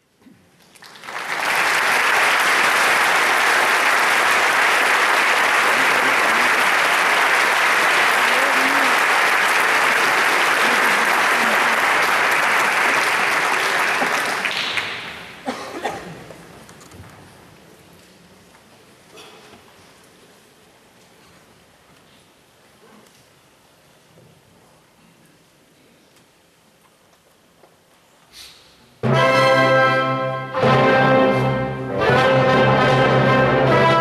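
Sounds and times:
audience applauding: 0.7 - 15.5.

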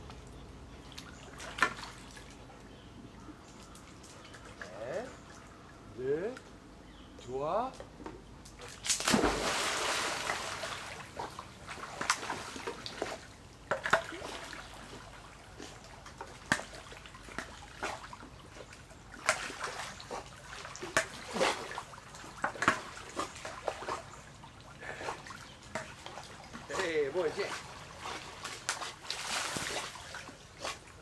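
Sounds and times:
water splashing in a pool: 0.8 - 2.4, 8.6 - 31.0.

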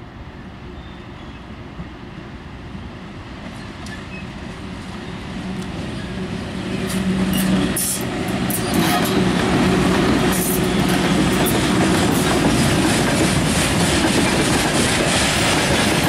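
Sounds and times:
electric locomotive hum: 0.0 - 16.0
train wheels rumbling on rail: 1.2 - 16.0
wheels clicking on rail joints: 3.4 - 16.0.

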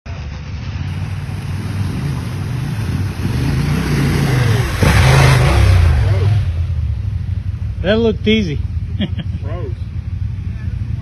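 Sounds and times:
motorcycle engine revving: 0.1 - 11.0
motorcycle passing close: 0.1 - 11.0.

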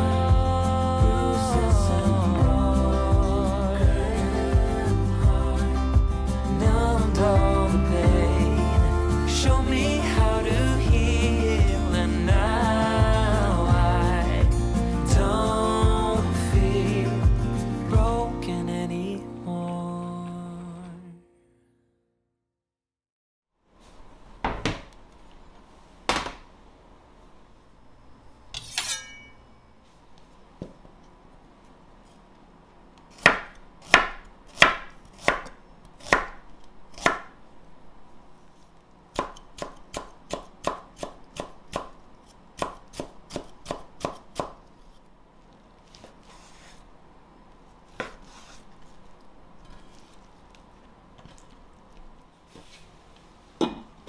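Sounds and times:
knife scrape: 28.6 - 29.4, 45.9 - 46.9, 47.9 - 48.9, 49.6 - 50.3
knife cutting on wooden board: 47.9 - 48.7.

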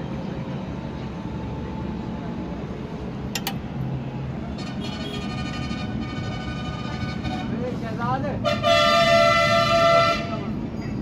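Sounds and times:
traffic noise: 0.0 - 11.0
sharp clicks: 3.3 - 3.6
vehicle horn sounding: 4.6 - 7.6, 8.4 - 10.5.

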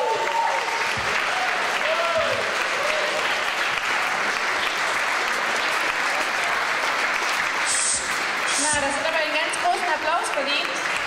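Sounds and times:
faint shout: 0.0 - 3.2
large audience applauding: 0.0 - 11.0.

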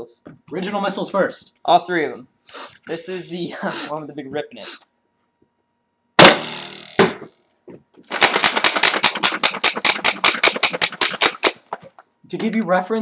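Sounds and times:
spring-driven launcher blast: 6.2 - 7.2.

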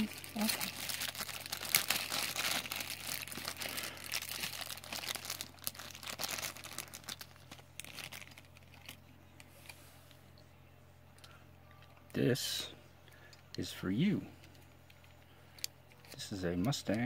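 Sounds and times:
bags crinkling and rustling: 0.0 - 9.0.

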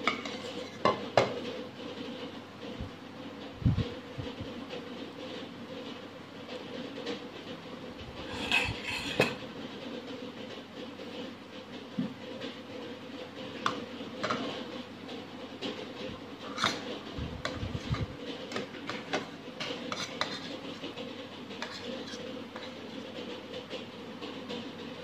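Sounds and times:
metal spoon scraping plate: 8.2 - 9.4.

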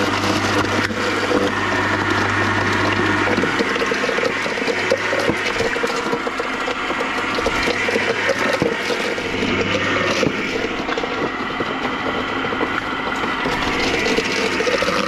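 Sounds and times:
crunching and clicking pieces: 0.0 - 15.0
garden shredder motor hum: 0.0 - 15.0.

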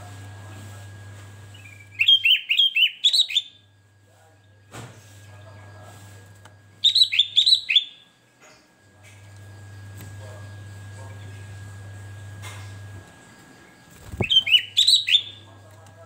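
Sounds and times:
bulbul singing: 1.5 - 3.7, 6.8 - 8.2, 13.6 - 15.6.

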